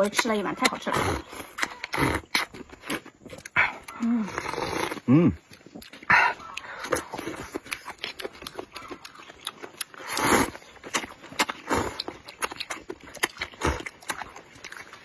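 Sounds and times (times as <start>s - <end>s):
wet mouth smacking and clicking: 0.0s - 4.0s, 5.0s - 15.0s
chewing: 0.0s - 15.0s
slurping noodles: 0.2s - 8.0s, 9.8s - 12.2s.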